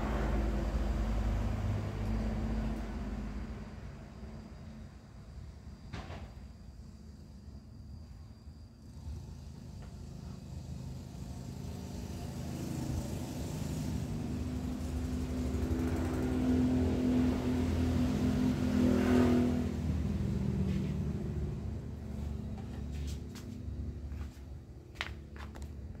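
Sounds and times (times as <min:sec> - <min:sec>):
vehicle engine passing by: 0:00.0 - 0:04.6, 0:08.9 - 0:24.6.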